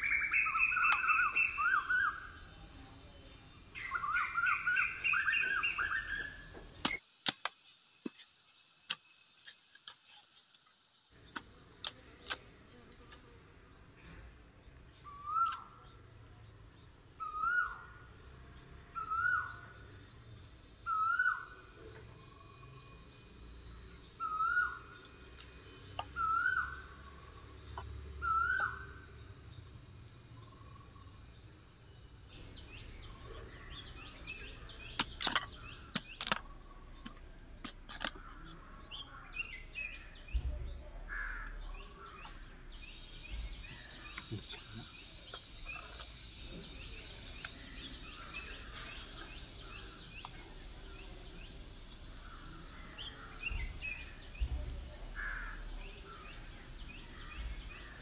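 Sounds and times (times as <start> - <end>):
bird whistled calls: 0.0 - 2.4, 3.8 - 7.0, 15.1 - 15.8, 17.2 - 17.8, 20.9 - 21.5, 24.2 - 24.9, 26.1 - 26.8, 28.2 - 28.8
insects droning: 0.0 - 58.0
machete cutting bamboo: 6.8 - 10.4, 35.0 - 36.4.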